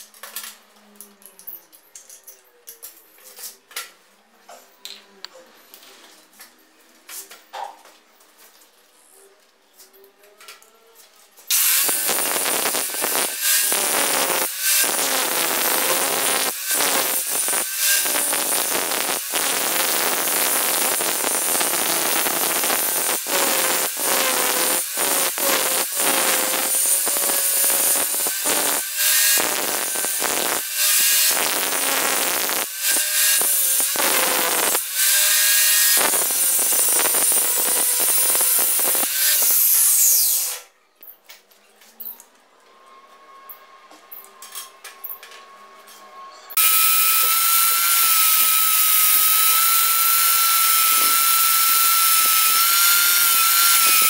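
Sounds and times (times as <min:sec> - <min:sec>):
angle grinder on steel: 0:11.5 - 0:40.6, 0:46.3 - 0:54.0.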